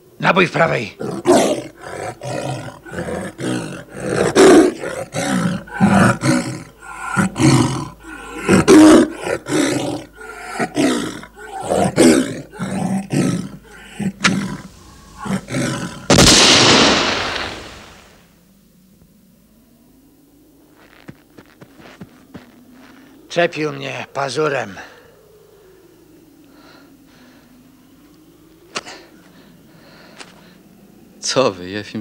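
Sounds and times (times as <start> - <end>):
tiger snarling and roaring: 0.6 - 18.1
gunshot: 16.1 - 18.1.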